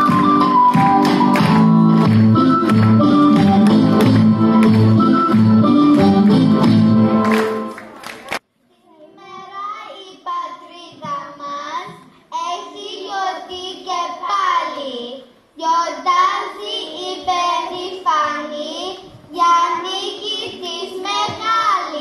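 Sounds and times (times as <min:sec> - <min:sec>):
young children singing together: 0:08.9 - 0:22.0.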